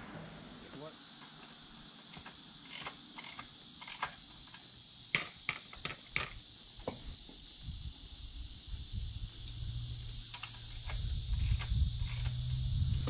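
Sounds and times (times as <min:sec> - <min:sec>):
insects hissing: 0:00.0 - 0:13.0.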